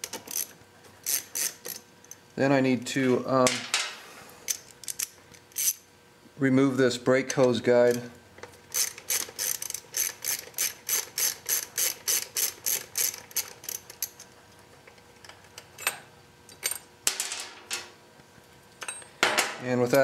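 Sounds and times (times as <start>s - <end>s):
hand ratchet clicking: 0.0s - 1.8s, 8.7s - 14.2s.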